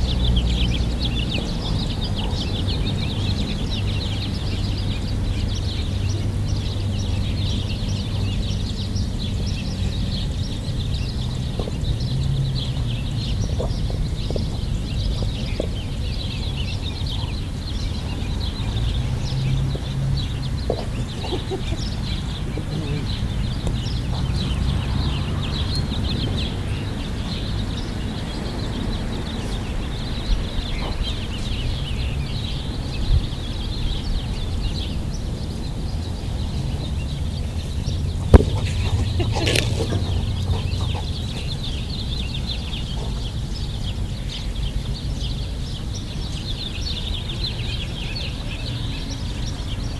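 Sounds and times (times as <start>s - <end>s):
small birds chirping: 0.0s - 49.9s
sharp thumps: 38.2s - 41.1s.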